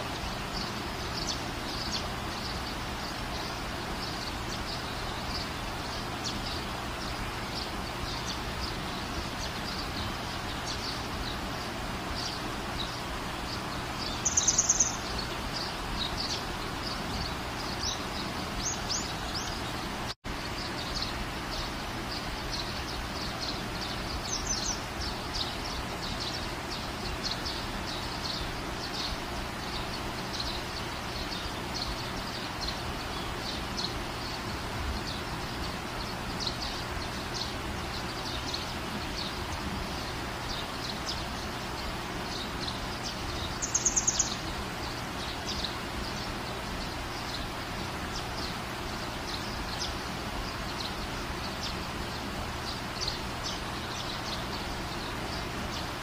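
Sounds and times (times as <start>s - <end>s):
small birds chirping: 0.0s - 56.0s
steady background hiss: 0.0s - 56.0s.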